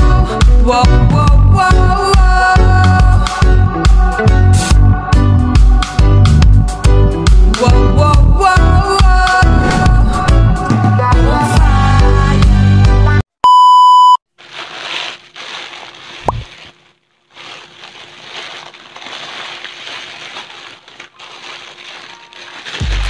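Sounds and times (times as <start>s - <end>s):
background music: 0.0s - 13.3s
loud steady beep: 13.4s - 14.2s
plastic mailer crinkling: 14.4s - 23.0s.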